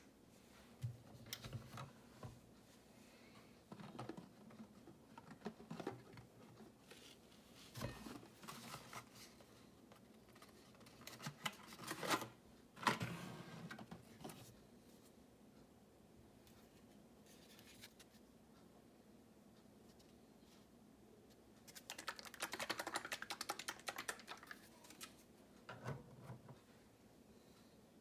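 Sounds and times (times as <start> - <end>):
cardboard and plastic rustling: 3.7 - 9.4.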